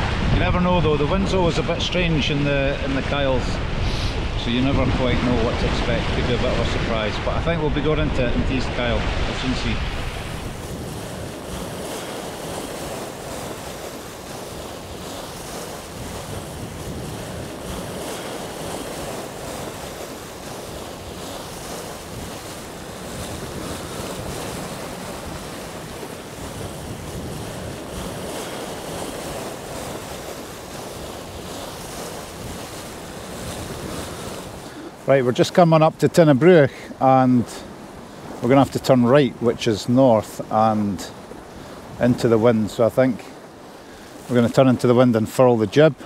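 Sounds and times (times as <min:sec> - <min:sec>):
wind noise on microphone: 0:00.0 - 0:34.8
water rushing along hull: 0:00.0 - 0:46.0.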